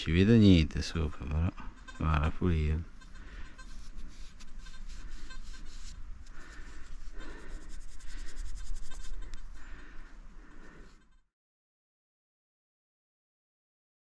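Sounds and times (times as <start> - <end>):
fingers rubbing soil off metal: 3.1 - 9.5.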